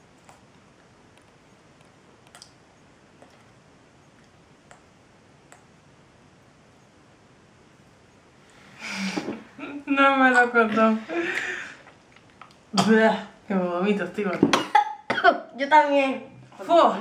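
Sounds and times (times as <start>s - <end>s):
faint room hiss: 0.0s - 17.0s.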